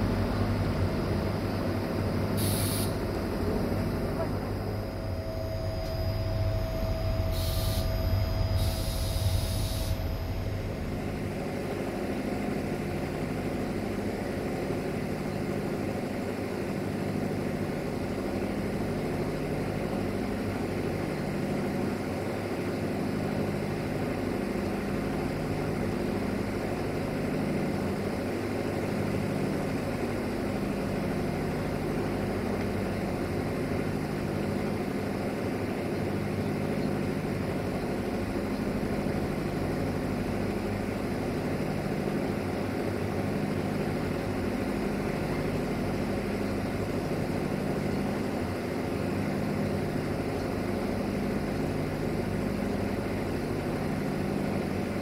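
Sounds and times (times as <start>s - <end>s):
thin steady whine: 0.0s - 16.2s
train engine drone: 0.0s - 55.0s
short hisses: 2.4s - 3.0s, 7.3s - 10.0s.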